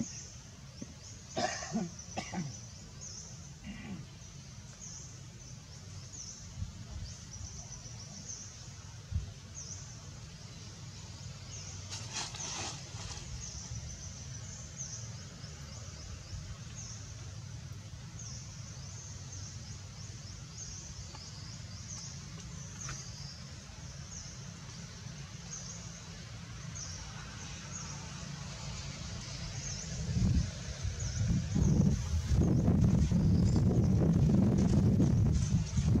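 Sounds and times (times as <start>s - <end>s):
steady low rumble: 28.8s - 36.0s.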